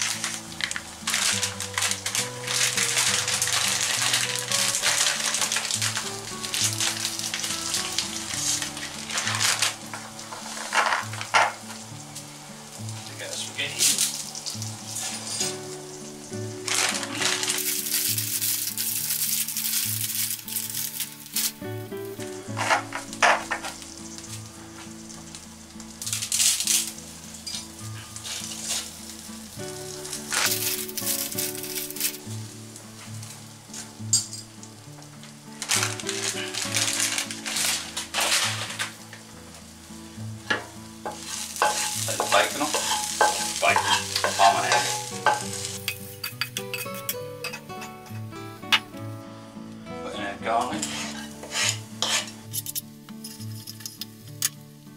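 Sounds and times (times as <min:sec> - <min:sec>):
background music: 0:00.0 - 0:54.9
ham sizzling: 0:00.0 - 0:54.9
pasta hissing in boiling water: 0:00.0 - 0:54.9
spatula scraping a pan: 0:08.4 - 0:11.6, 0:22.5 - 0:23.8, 0:35.8 - 0:39.0, 0:41.1 - 0:47.0, 0:50.7 - 0:54.1.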